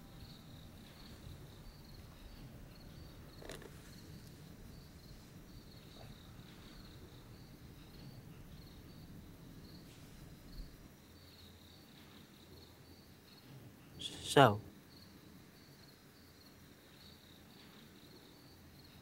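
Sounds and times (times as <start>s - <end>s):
low background rumble: 0.0s - 11.8s
crickets chirping: 0.0s - 19.0s.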